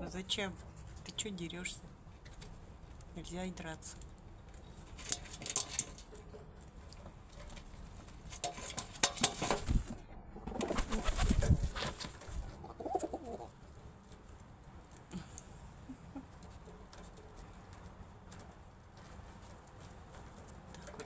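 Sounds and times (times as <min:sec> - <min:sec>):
pigeon wings flapping: 0:09.0 - 0:13.4
pigeon cooing: 0:12.4 - 0:13.6.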